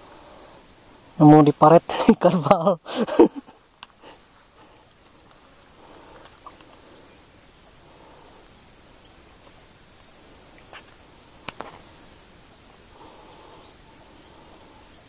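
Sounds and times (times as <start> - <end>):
faint hiss: 0.0 - 15.0.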